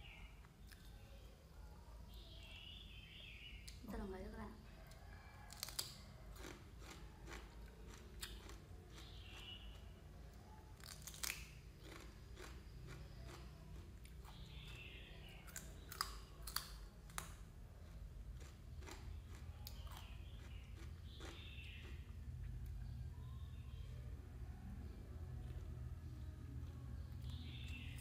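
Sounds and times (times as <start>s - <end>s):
faint low hum: 0.0s - 28.0s
person chewing: 4.8s - 9.6s, 10.7s - 14.8s, 15.4s - 22.2s.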